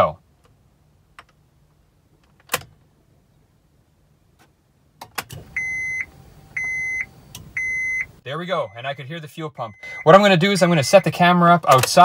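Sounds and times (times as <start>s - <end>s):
dashboard warning chime beeps: 5.5s - 11.3s.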